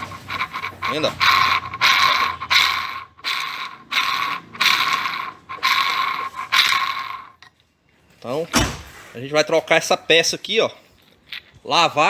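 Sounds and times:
bearing grinding rattle: 0:00.0 - 0:07.6.

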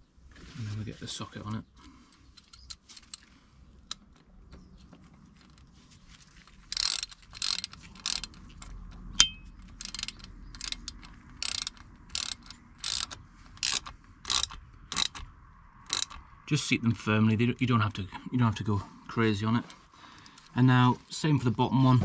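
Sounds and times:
ratchet wrench clicking: 0:06.5 - 0:16.4
sharp metallic clink: 0:09.2 - 0:09.6.

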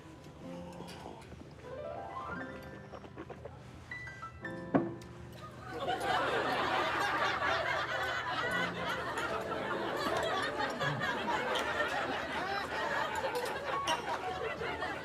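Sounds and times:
many people laughing: 0:05.4 - 0:15.0.

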